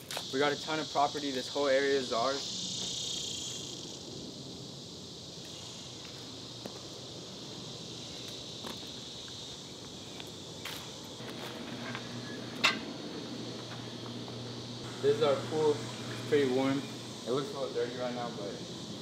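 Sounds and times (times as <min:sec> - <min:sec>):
high-pitched insect chorus: 0:00.0 - 0:19.0
footsteps on pavement: 0:02.8 - 0:03.3, 0:05.4 - 0:14.6.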